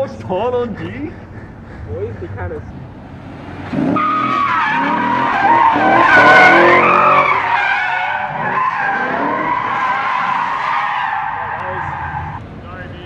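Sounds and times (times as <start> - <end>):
car engine revving: 0.6 - 13.0
tyres squealing: 3.8 - 12.4.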